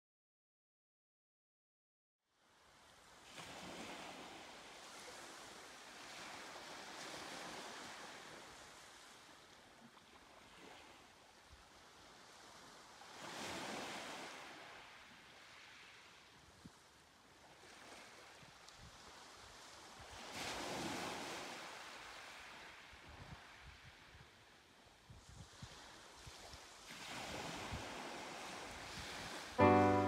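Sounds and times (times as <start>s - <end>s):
soft waves washing onto beach: 2.3s - 30.0s
waves breaking and draining back: 25.5s - 30.0s.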